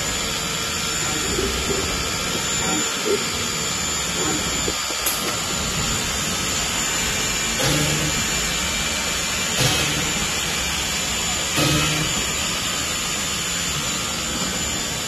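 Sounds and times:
low hum: 0.0 - 8.6
steady machine hiss: 0.0 - 15.0.

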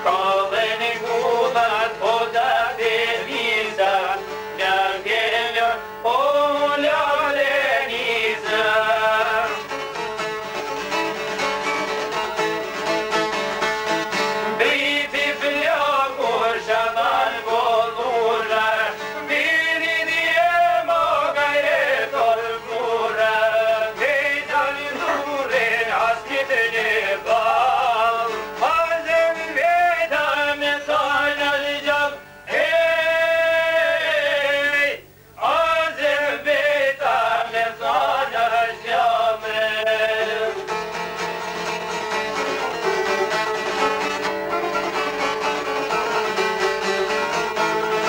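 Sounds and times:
man singing folk song: 0.0 - 13.5, 14.1 - 48.0
plucked long-necked lutes: 8.2 - 16.7, 22.1 - 30.4, 40.1 - 48.0.

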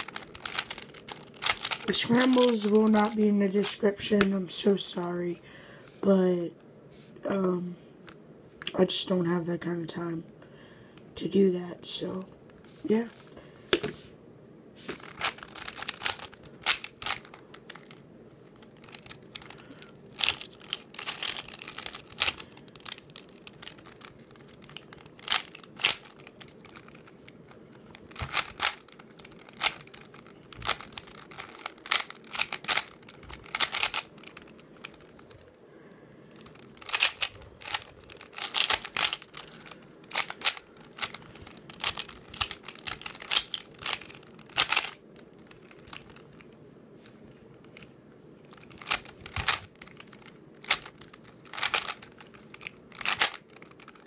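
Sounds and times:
plastic puzzle cube clicking: 0.0 - 2.4, 15.0 - 18.0, 20.2 - 35.4, 36.4 - 46.4, 48.5 - 54.0.

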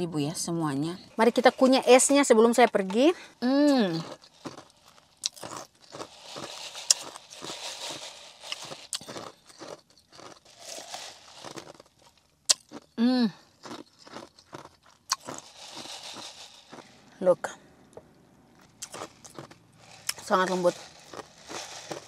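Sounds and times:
ice being chewed: 1.2 - 17.2, 18.6 - 22.0.

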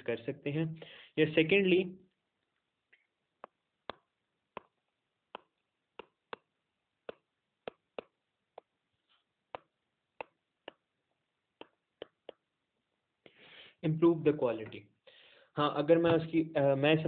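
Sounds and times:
stylus tapping on tablet screen: 3.4 - 8.8, 9.5 - 10.9, 11.5 - 12.5.

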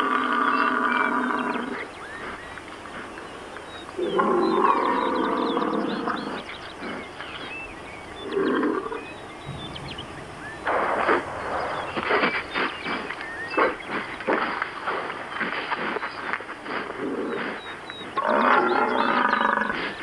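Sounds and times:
small birds chirping: 0.0 - 20.0
bison grunting: 4.0 - 7.6, 8.2 - 20.0.

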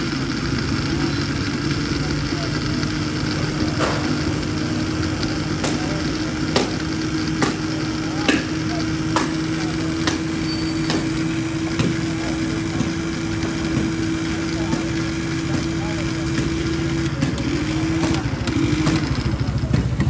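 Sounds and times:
motor hum: 0.0 - 20.0
street noise: 0.0 - 20.0
sharp knocks: 5.6 - 12.0.

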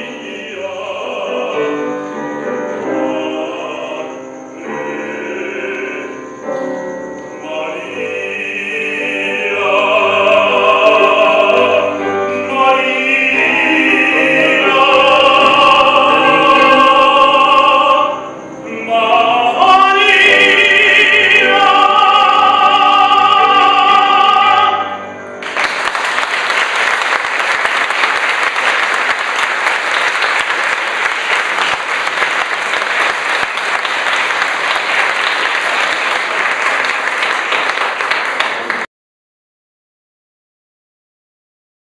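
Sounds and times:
operatic tenor singing: 0.0 - 6.4, 7.3 - 25.2
audience applause: 25.4 - 38.9.

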